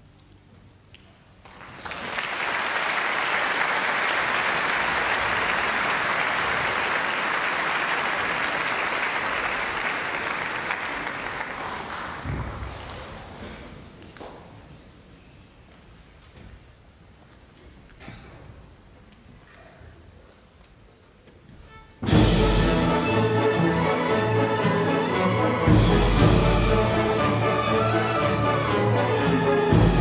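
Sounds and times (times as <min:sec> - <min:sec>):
audience applauding: 0:01.4 - 0:13.3.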